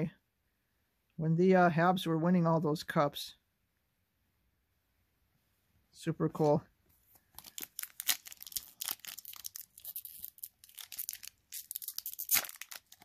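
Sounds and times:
wrapper crinkling and tearing: 7.3 - 13.0.

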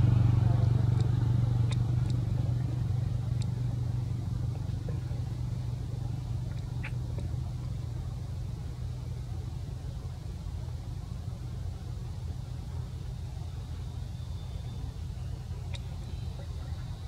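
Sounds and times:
low engine-like rumble: 0.0 - 17.0
faint clicks: 0.9 - 3.7, 6.4 - 7.7, 15.6 - 16.0.

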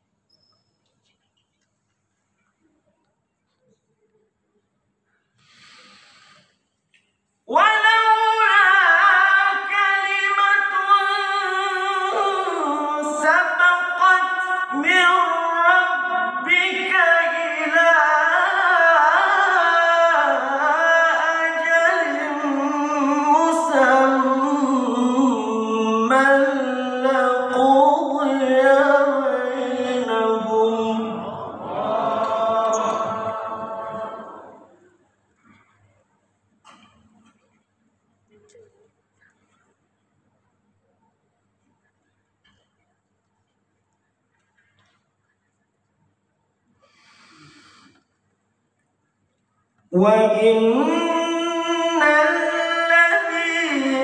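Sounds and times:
man chanting melodically: 7.5 - 34.6, 50.0 - 54.0.

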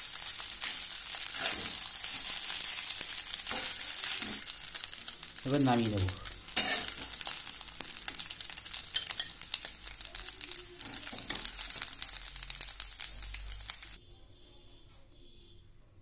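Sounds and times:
rice sizzling in a wok: 0.0 - 14.0
metal spatula scraping a pan: 0.6 - 4.5, 6.5 - 7.4.

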